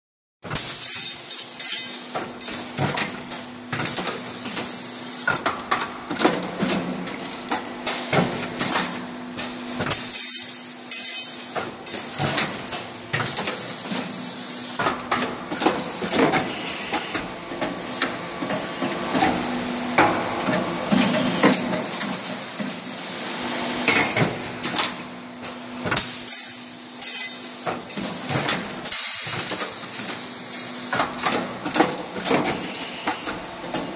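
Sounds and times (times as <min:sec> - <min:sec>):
steady machine hum: 0:01.1 - 0:32.2
pneumatic air hiss: 0:04.0 - 0:05.3, 0:32.5 - 0:33.4.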